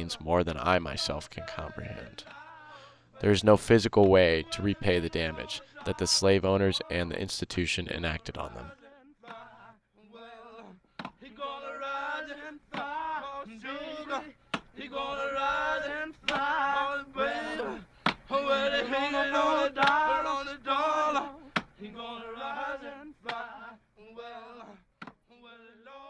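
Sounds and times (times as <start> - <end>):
men singing: 0.0 - 3.4, 8.6 - 26.0.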